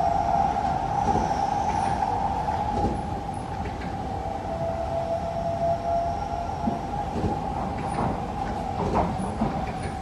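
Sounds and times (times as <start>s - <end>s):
train wheels rumbling on track: 0.0s - 10.0s
train whining tone: 0.0s - 10.0s
rail knocks: 6.6s - 10.0s.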